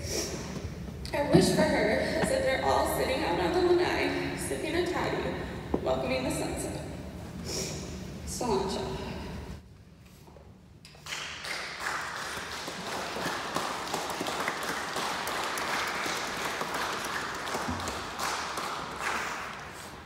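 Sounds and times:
crowd clapping: 10.9s - 20.0s.

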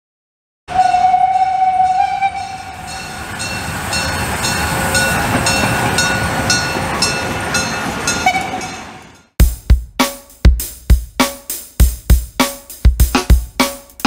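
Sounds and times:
steam locomotive whistle: 0.7s - 9.0s
train running rhythmically: 1.9s - 9.4s.

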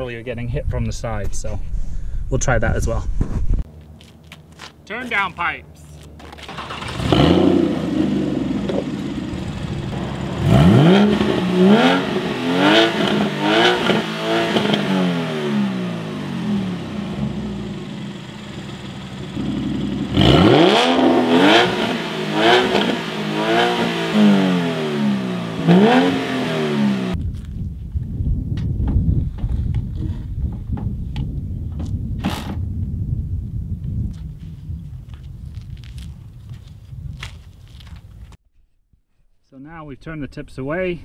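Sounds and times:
car engine idling: 5.8s - 14.3s, 15.0s - 27.0s
car engine revving: 6.2s - 27.2s.

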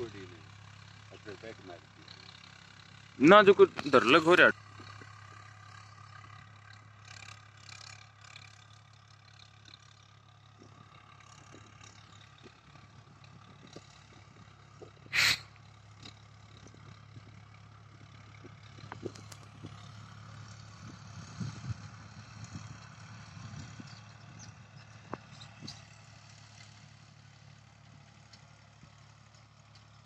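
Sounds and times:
distant tractor diesel engine: 0.0s - 30.0s
short loud burst: 15.2s - 15.4s.

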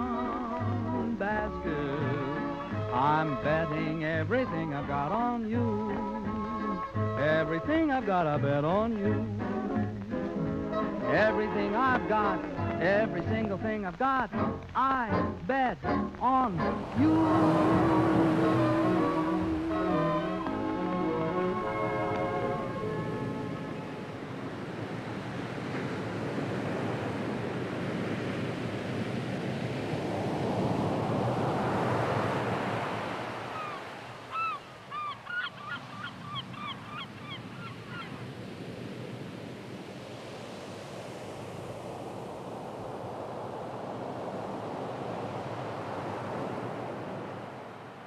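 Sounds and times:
ocean surf washing in: 0.0s - 48.0s
bird calling: 33.4s - 38.4s.

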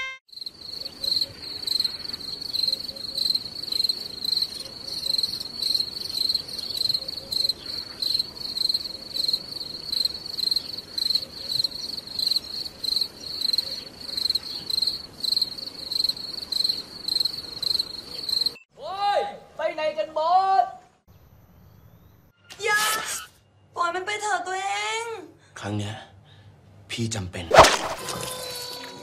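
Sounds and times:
insect calling in high pulses: 0.3s - 18.6s, 27.5s - 29.0s.

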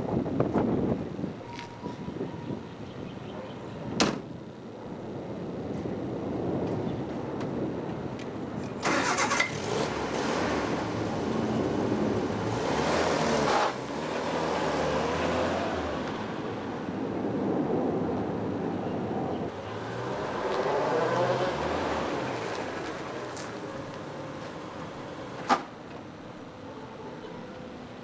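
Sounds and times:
car engine cranking and running: 8.7s - 13.9s.

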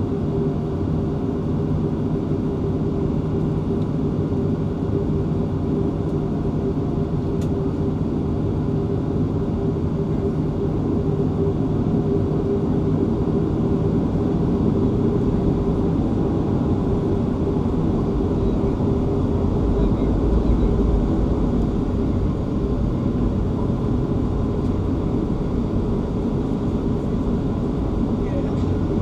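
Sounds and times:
jet engines idling: 0.0s - 29.0s.

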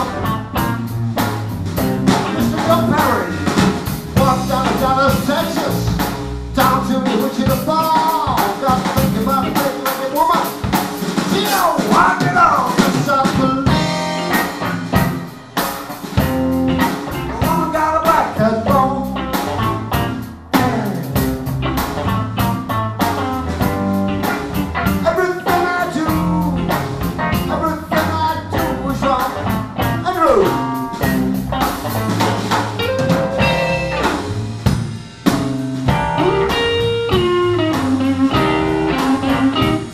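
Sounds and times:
bending lead guitar line: 0.0s - 39.9s
electric blues band playing: 0.0s - 39.9s.

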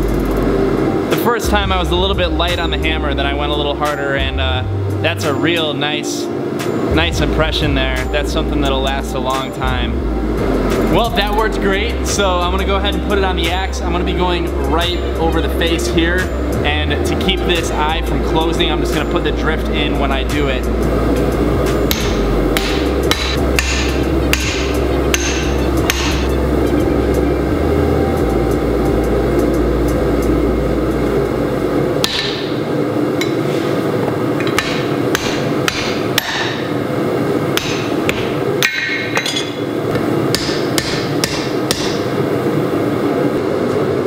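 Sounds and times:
hammer ringing on anvil: 21.9s - 26.3s, 32.0s - 32.6s, 34.4s - 36.7s, 37.6s - 42.1s.

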